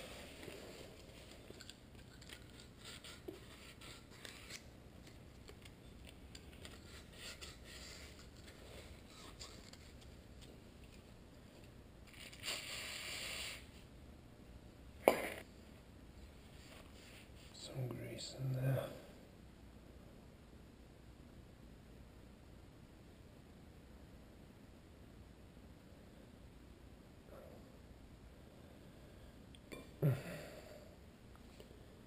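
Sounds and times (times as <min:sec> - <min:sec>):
aerosol spray hiss: 0:12.4 - 0:13.8.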